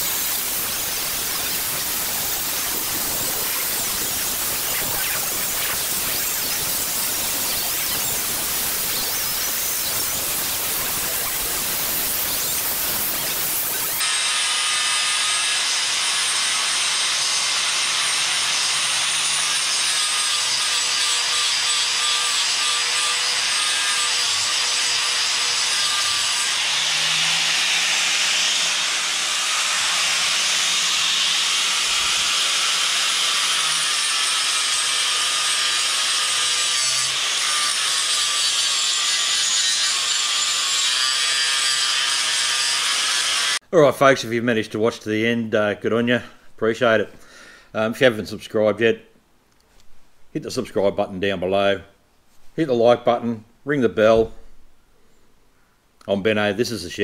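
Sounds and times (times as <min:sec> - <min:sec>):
angle grinder cutting steel: 0:00.0 - 0:43.6.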